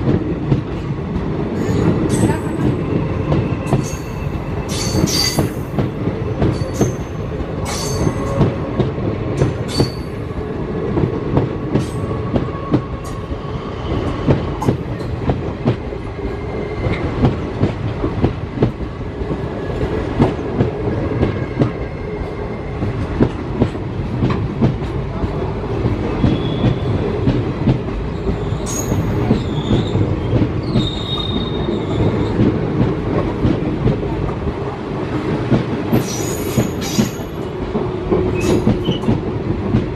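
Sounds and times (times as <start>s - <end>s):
train wheels rumbling on rail: 0.0s - 39.9s
high-pitched wheel squeals: 28.4s - 32.4s.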